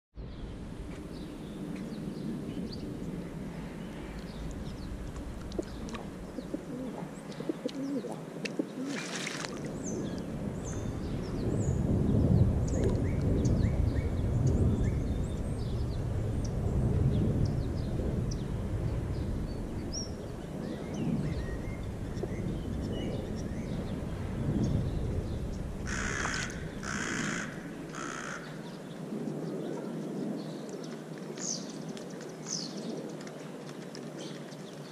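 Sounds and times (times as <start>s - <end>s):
low rumble: 0.2s - 8.8s, 9.5s - 29.6s
birds chirping: 0.2s - 34.9s
pigeons: 3.6s - 11.6s, 25.4s - 34.9s.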